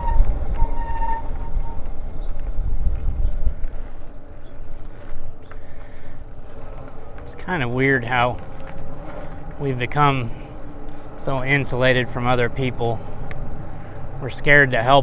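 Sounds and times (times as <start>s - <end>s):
tyre rumble: 0.0s - 11.3s
wind buffeting microphone: 0.0s - 15.0s.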